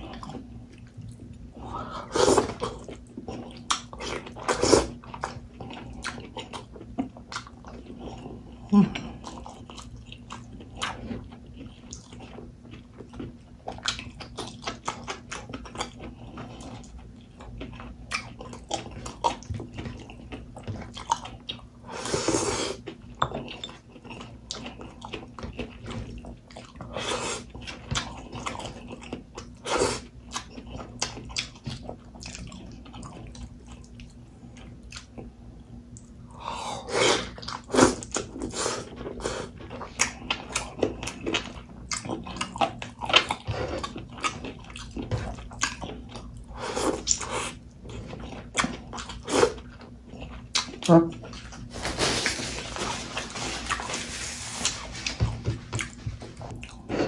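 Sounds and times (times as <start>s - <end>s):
chewing and lip smacking: 2.4s - 21.7s, 30.2s - 35.3s, 37.2s - 51.7s.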